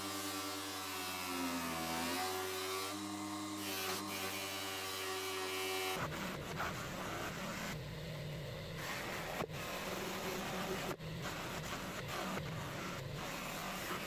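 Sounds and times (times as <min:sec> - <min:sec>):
bench grinder motor humming: 0:00.0 - 0:06.0.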